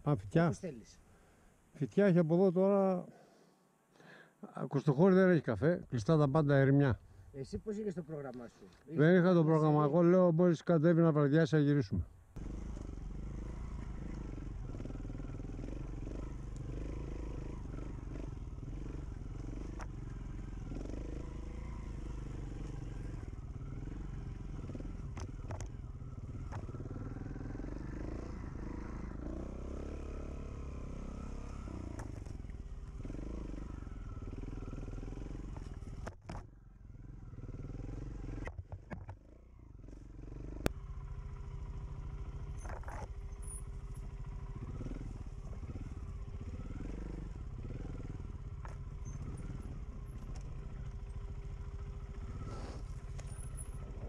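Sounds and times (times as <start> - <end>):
motorcycle engine revving: 12.4 - 54.0.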